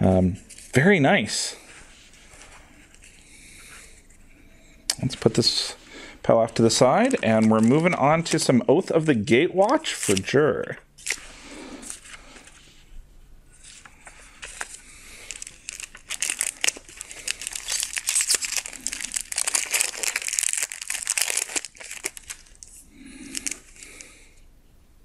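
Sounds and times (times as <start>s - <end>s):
plastic wrapper crinkling and tearing: 6.4s - 12.5s, 13.6s - 24.1s.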